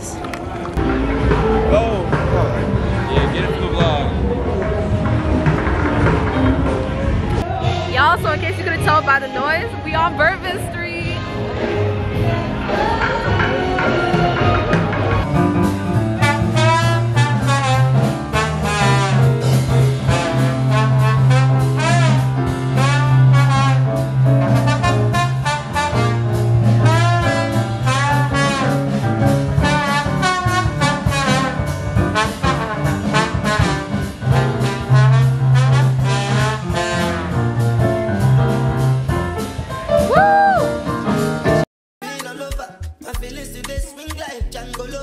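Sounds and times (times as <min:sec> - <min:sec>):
jazz band playing: 0:00.0 - 0:45.0
trombone melody: 0:13.6 - 0:39.2.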